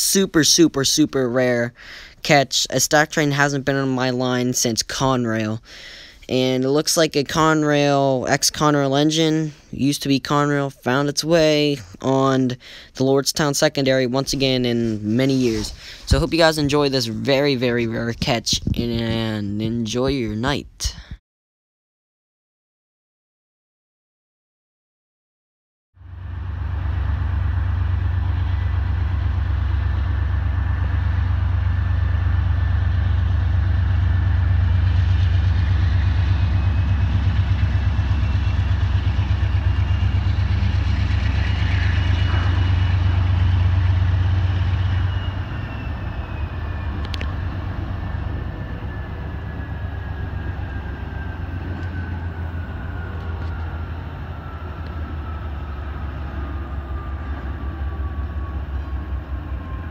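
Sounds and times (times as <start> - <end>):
diesel locomotive rumble: 0.0 - 21.1, 26.0 - 59.9
faint high whine: 26.0 - 59.9.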